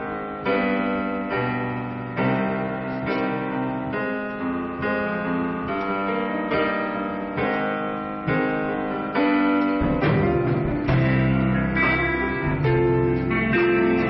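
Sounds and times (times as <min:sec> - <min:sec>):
electronic keyboard chords: 0:00.0 - 0:14.0
guitars playing: 0:07.0 - 0:14.0
low bass notes: 0:09.6 - 0:14.0.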